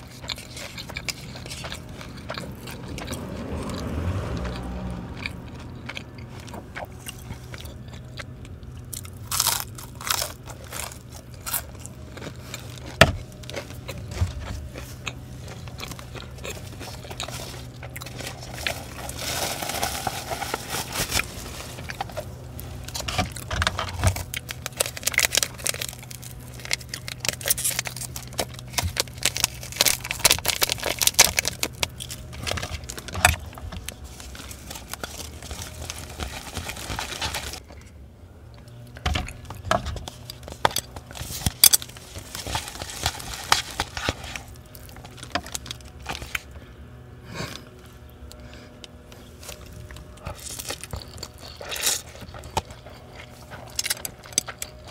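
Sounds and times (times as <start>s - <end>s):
crunchy chewing of fried food: 0.0s - 54.9s
plastic wrap crinkling: 9.1s - 37.6s, 40.0s - 46.4s.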